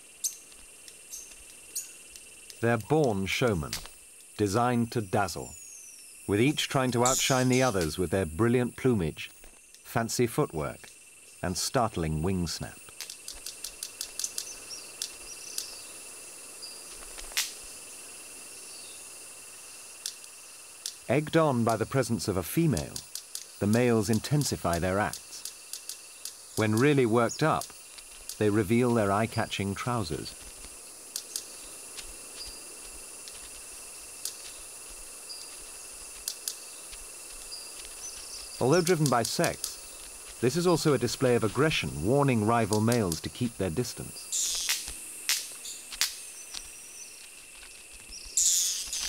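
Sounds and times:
high insect drone: 0.0 - 49.0
bird wing snaps: 16.9 - 17.6, 44.4 - 46.7.

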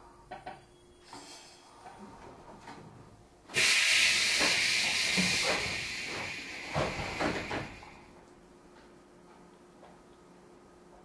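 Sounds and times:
compressed air hissing: 1.1 - 1.8, 3.5 - 8.1
train wheels knocking: 4.2 - 7.9.

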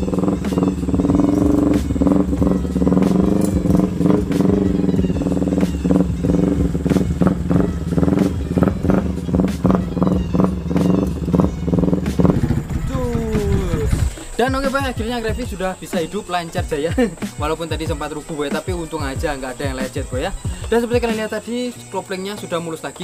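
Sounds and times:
motorcycle engine surging: 0.0 - 22.2.

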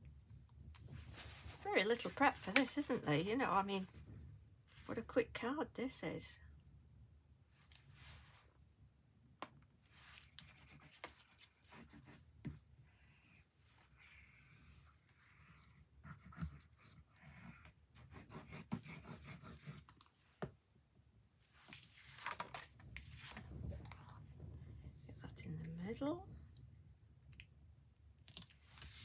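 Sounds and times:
card rustling: 21.7 - 24.0.

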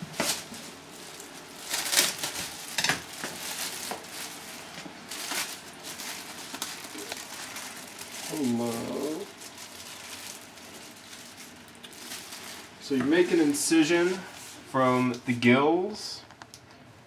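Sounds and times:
plastic bag crinkling: 0.0 - 15.2.

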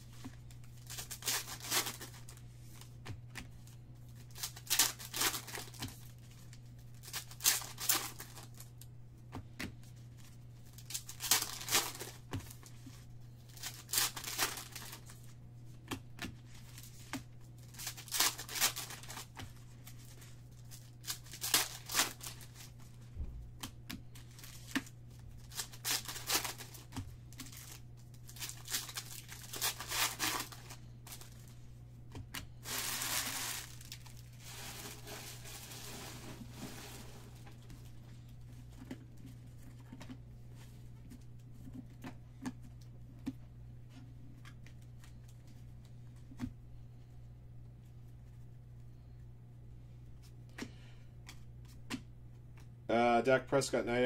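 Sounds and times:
steady low hum: 0.0 - 54.0
foil wrappers tearing and crinkling: 0.6 - 2.9, 4.1 - 8.8, 10.6 - 15.3, 16.5 - 22.9, 24.1 - 31.6, 32.6 - 37.5.

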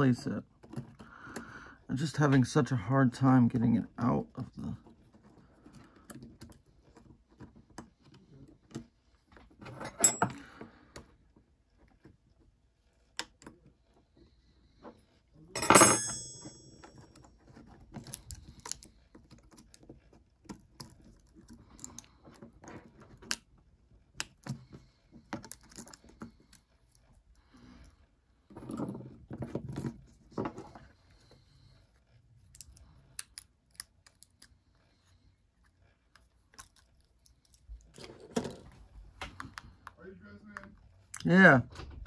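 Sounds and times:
parts clattering: 9.6 - 10.6, 15.6 - 17.0.

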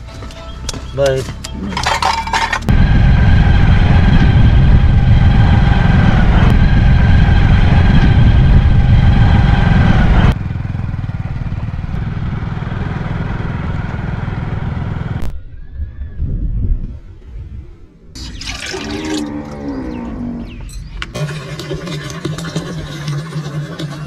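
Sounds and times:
motorcycle engine running: 1.4 - 15.3
wind rumble on microphone: 2.7 - 10.4, 11.8 - 18.2.

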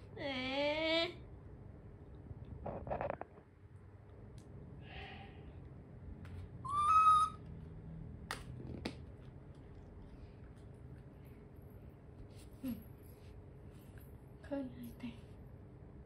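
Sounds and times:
baby macaque coo: 6.6 - 7.4.

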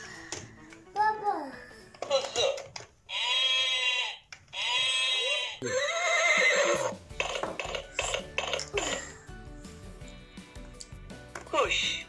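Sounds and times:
toy horse whinny from speaker: 3.1 - 7.4.

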